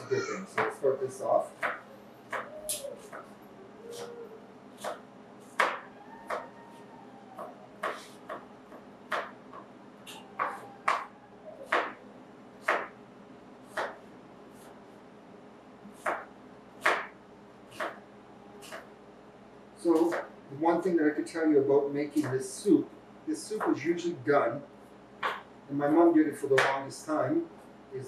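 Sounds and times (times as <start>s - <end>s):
knife chopping on cutting board: 4.8s - 6.4s, 7.8s - 8.4s, 9.1s - 9.4s, 11.7s - 12.0s, 12.6s - 13.0s, 13.7s - 14.0s, 15.9s - 18.0s, 20.0s - 20.3s, 25.2s - 25.5s.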